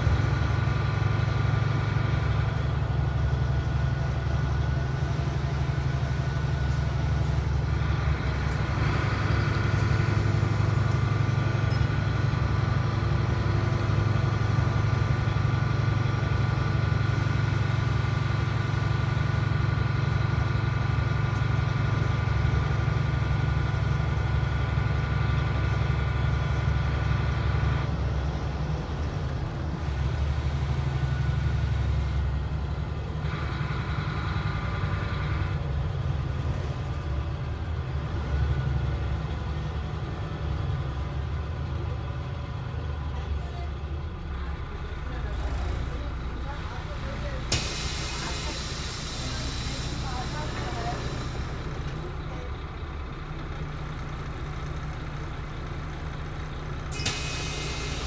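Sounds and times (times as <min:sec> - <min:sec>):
bus diesel engine drone: 0:00.0 - 0:58.0
higher engine tones: 0:43.4 - 0:54.7.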